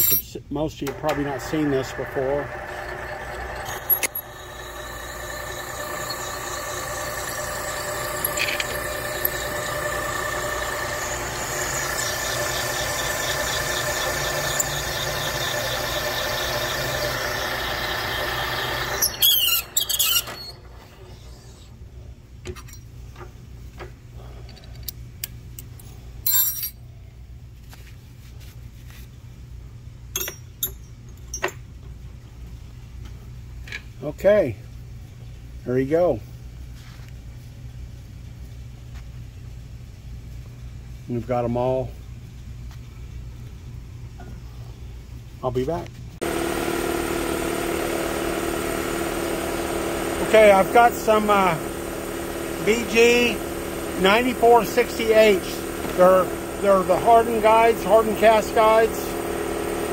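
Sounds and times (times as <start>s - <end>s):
machine hum: 0.7s - 22.1s, 46.2s - 59.9s
high-pitched cutting tool whine: 0.9s - 21.7s, 46.2s - 59.9s.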